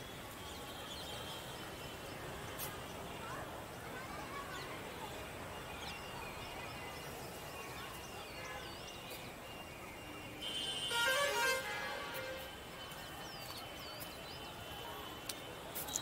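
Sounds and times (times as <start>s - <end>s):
distant traffic hum: 0.0s - 16.0s
vehicle horn honking: 10.4s - 12.7s.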